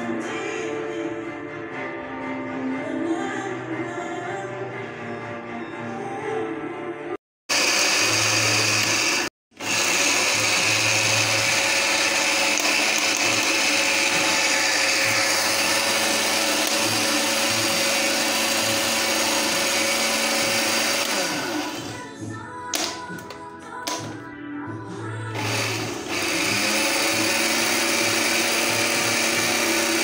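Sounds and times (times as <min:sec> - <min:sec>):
blender grinding oats: 0:07.5 - 0:22.1, 0:25.3 - 0:30.0.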